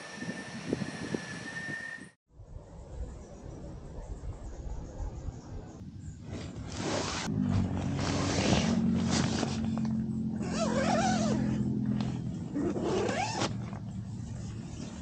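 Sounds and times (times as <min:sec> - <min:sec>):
tent nylon rustling: 0:06.2 - 0:15.0.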